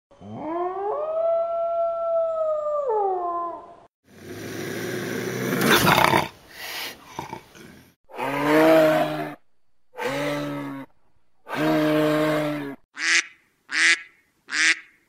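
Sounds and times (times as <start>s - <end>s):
animal rough noisy call: 7.1s - 12.9s
animal long pitched call: 8.1s - 12.8s.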